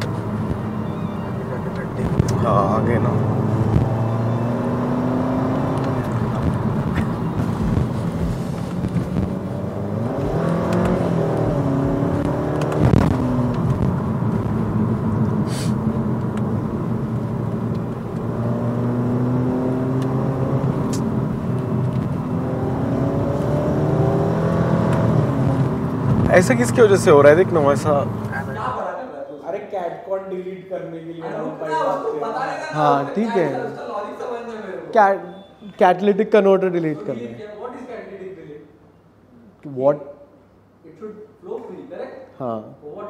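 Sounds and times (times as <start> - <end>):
car engine accelerating: 0.0 - 28.6
road noise: 0.0 - 28.9
sharp click: 20.9 - 21.1.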